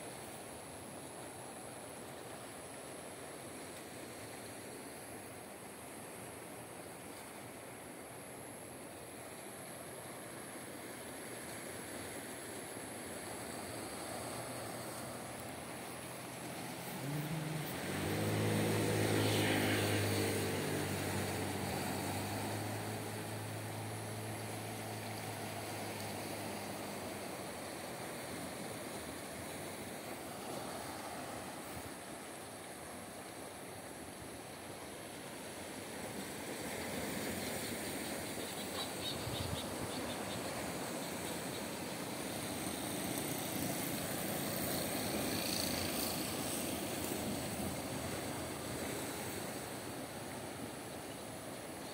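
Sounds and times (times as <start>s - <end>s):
steady hiss: 0.0s - 19.4s
sea on rocky shore: 0.0s - 51.9s
wind: 0.0s - 51.9s
engine droning past: 13.8s - 31.6s, 40.0s - 49.9s.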